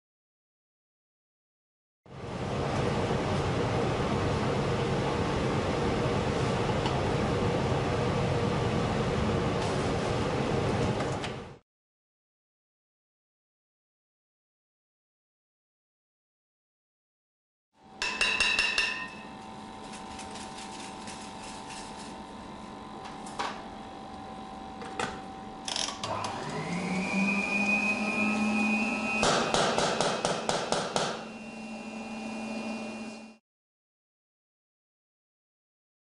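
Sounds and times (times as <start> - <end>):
steady machine hum: 17.8 - 33.4
small electric motor whine: 25.3 - 29.3, 31.3 - 33.4.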